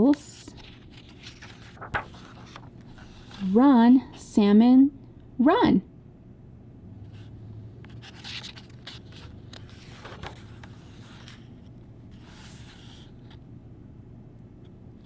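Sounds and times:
book pages rustling: 0.5 - 3.6, 7.9 - 13.4
hand swishing across paper: 1.4 - 3.6, 12.1 - 13.2.

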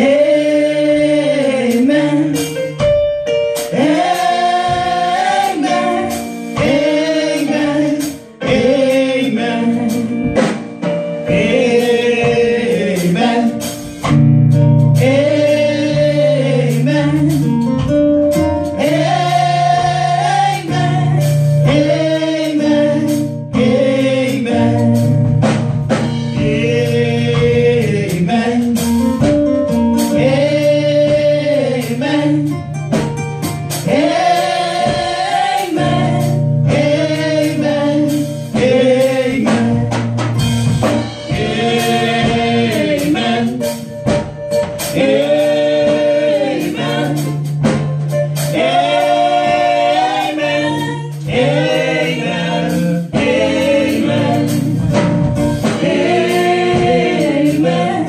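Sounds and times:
female vocal group singing: 3.8 - 10.4, 18.7 - 25.0, 33.8 - 40.0, 48.5 - 58.0.

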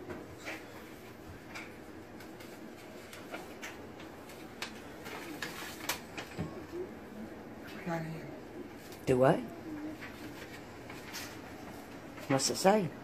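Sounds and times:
paper rustling and crinkling: 2.1 - 6.4, 9.9 - 12.4.

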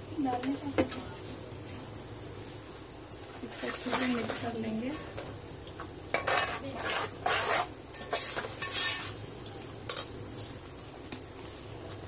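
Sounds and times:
frying sizzle in oil: 0.0 - 12.0
metal spoon scraping pot: 6.2 - 9.2.

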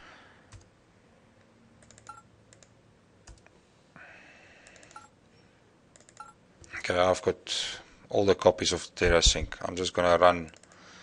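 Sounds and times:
faint computer mouse clicks: 10.6 - 10.8.

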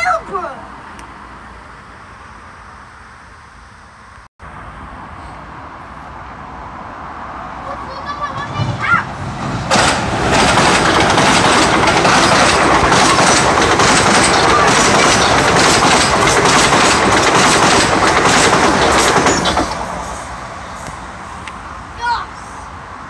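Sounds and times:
train rumble: 4.8 - 23.0
train wheels clattering over rail joints: 9.4 - 20.2.

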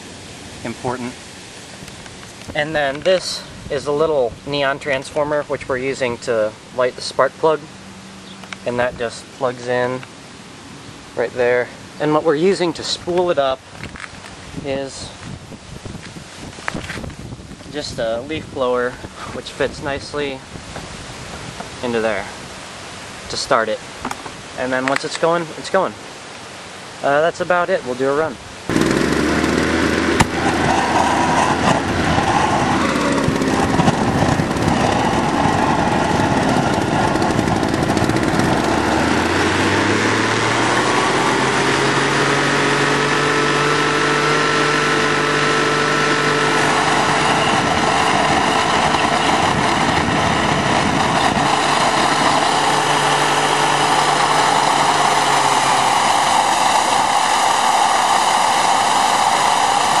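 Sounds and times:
turbine rushing noise: 28.6 - 60.0
leaf blower running: 28.7 - 60.0.

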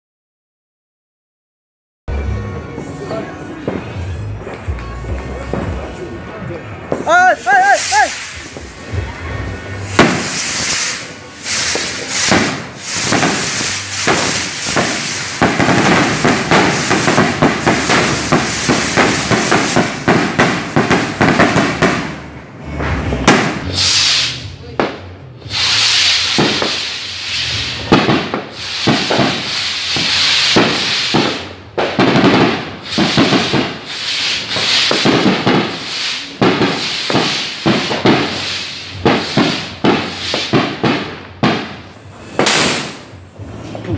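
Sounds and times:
rockets launching whoosh: 7.4 - 9.1, 9.8 - 43.2
firework pops and cracks: 9.9 - 22.2, 23.2 - 43.2.

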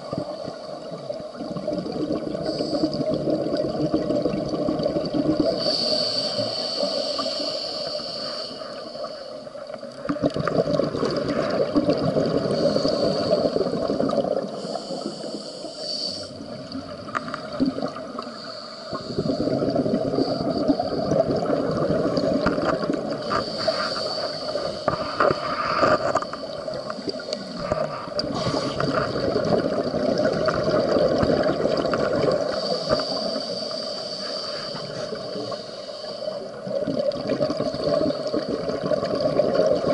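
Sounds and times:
gurgling exhaled bubbles: 0.0 - 6.9, 9.8 - 15.4, 16.4 - 33.7, 36.4 - 39.9
diver breathing through regulator: 5.5 - 9.5, 12.4 - 13.9, 14.5 - 16.5, 18.2 - 21.1, 23.1 - 29.3, 32.4 - 36.6.

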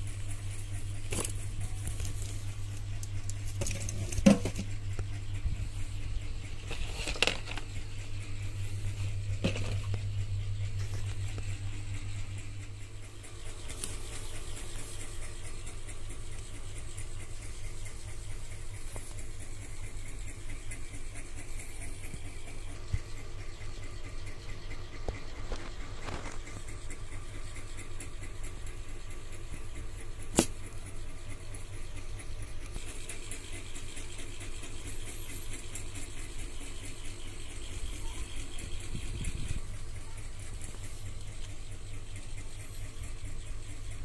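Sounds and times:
steady low hum: 0.0 - 44.0
objects knocking and clicking: 3.6 - 4.7, 9.4 - 10.0.

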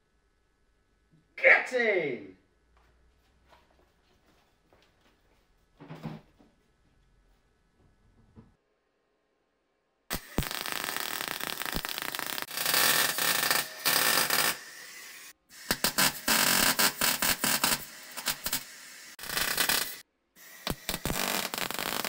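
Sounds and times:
welder arc crackling: 10.1 - 14.6, 15.6 - 20.0, 20.6 - 22.0.

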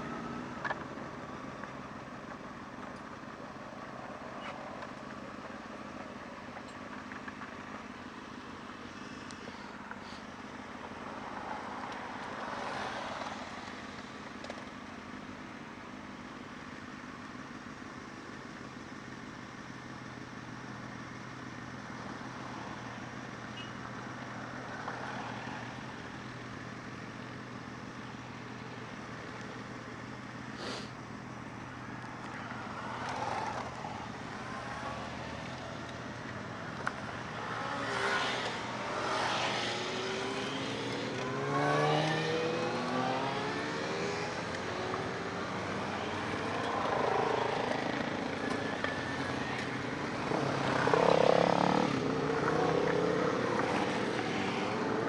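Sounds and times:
wind and road noise: 0.0 - 55.0
motorcycle engine cruising: 25.2 - 55.0.

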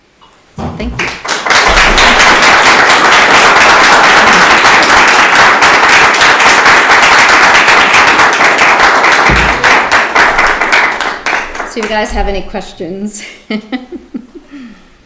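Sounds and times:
audience applauding: 1.0 - 12.1.

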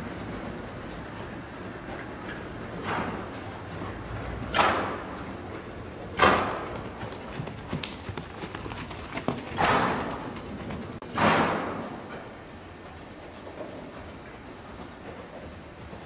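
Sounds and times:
horse hoofbeats: 0.2 - 11.0, 12.8 - 16.0.

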